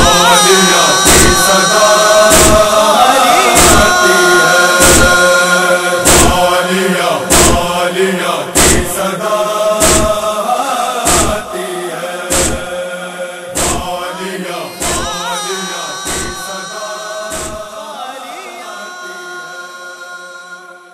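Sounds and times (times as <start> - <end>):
chorus chanting a refrain: 0.0 - 20.9
chest-beating thumps: 1.0 - 1.6, 2.3 - 2.8, 4.8 - 5.2, 6.1 - 6.4, 7.3 - 7.6, 8.6 - 8.9, 9.8 - 10.2, 11.1 - 11.4, 12.3 - 12.7, 13.6 - 13.9, 16.1 - 16.4, 17.3 - 17.7.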